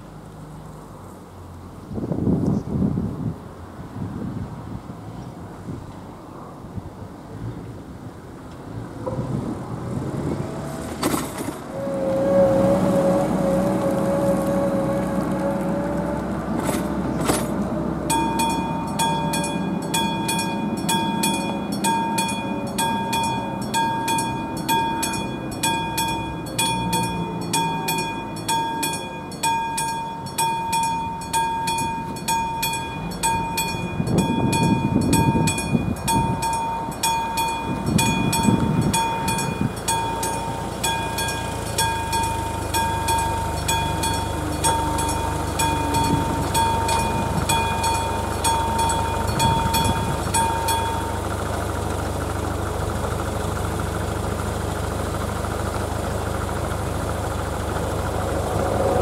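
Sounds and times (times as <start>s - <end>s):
car passing: 3.1s - 51.7s, 57.2s - 59.0s
level crossing bell ringing: 16.6s - 51.8s.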